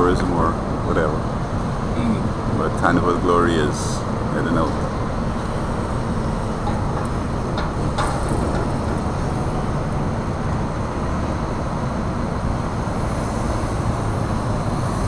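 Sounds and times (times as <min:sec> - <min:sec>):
cruise ship rumble: 0:00.0 - 0:15.0
wind noise on microphone: 0:04.0 - 0:15.0.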